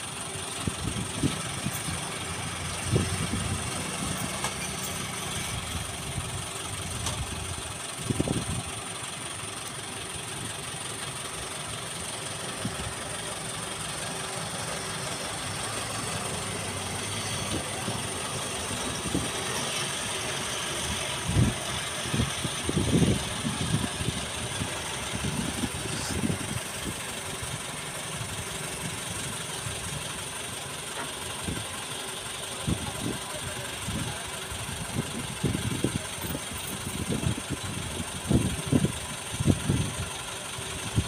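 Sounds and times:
truck diesel engine running: 0.0s - 41.0s.

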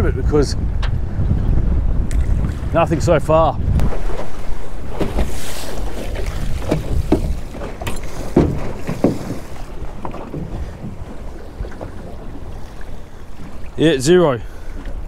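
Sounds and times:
wind buffeting microphone: 0.0s - 15.0s
water slapping against boat: 2.0s - 15.0s
sharp knocks on boat: 4.9s - 12.2s.

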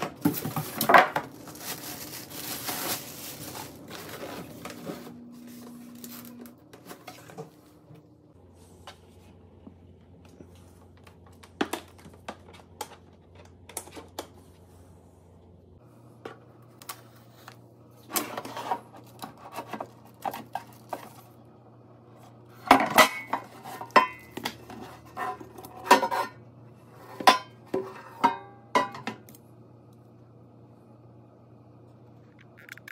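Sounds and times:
air fryer parts clattering: 22.6s - 26.4s, 27.1s - 29.4s.

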